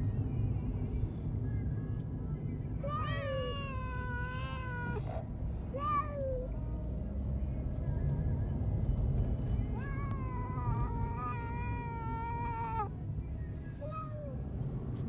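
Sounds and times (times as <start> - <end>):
steady low rumble: 0.0 - 15.0
cat meowing in distress: 2.8 - 5.2, 9.7 - 12.9.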